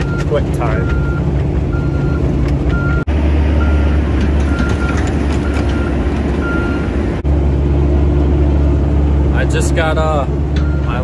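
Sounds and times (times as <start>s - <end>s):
reversing alarm beeping: 0.0s - 3.0s, 3.6s - 6.9s
diesel engine running: 0.0s - 11.0s.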